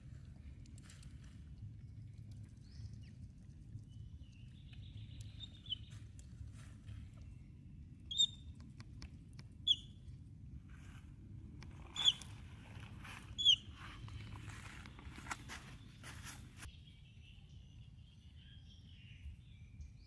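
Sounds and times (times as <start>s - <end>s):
low steady rumble: 0.0s - 20.0s
baby monkey squeaking: 8.1s - 8.4s, 9.7s - 9.9s, 11.9s - 12.3s, 13.3s - 13.8s.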